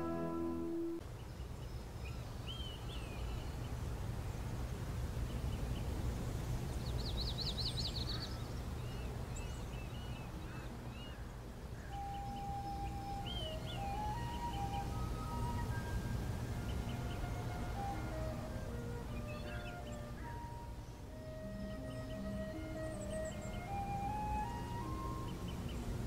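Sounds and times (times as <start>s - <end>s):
melody of stepped notes: 0.0s - 1.0s, 12.4s - 25.6s
birds chirping: 6.8s - 26.0s
bird trill: 11.8s - 25.9s.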